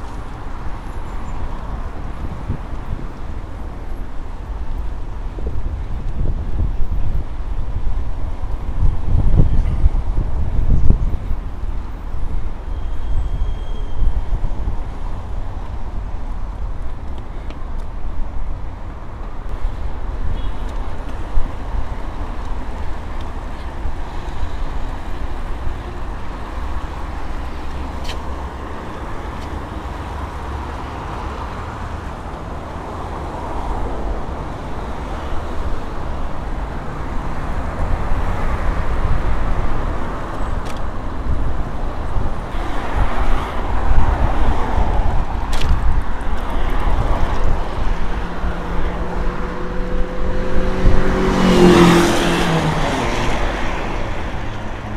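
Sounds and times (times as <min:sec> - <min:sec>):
road traffic: 0:00.0 - 0:54.9
wind rumbling on microphone: 0:00.0 - 0:54.9.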